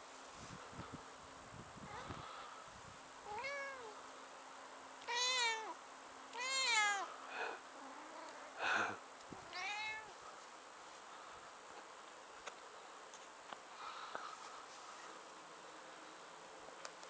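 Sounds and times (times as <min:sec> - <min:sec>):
cat meowing: 0:03.3 - 0:03.9, 0:05.1 - 0:05.8, 0:06.4 - 0:07.1, 0:09.4 - 0:10.1.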